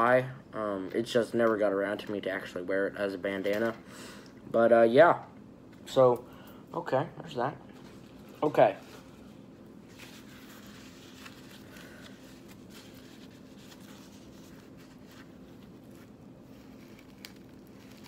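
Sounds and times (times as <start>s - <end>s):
low steady hum: 0.0s - 18.0s
tissue paper rustling: 7.8s - 18.0s.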